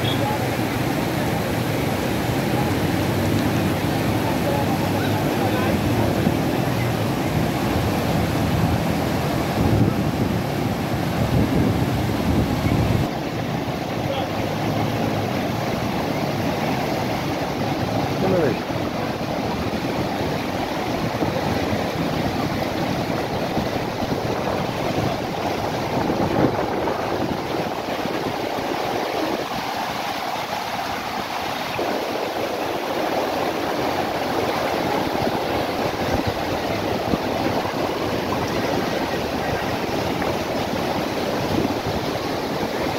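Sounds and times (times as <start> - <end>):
stream rushing over rocks: 0.0 - 42.9.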